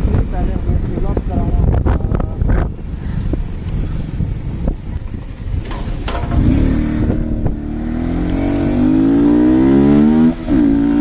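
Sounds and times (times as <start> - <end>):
motorcycle engine accelerating: 2.9 - 11.0.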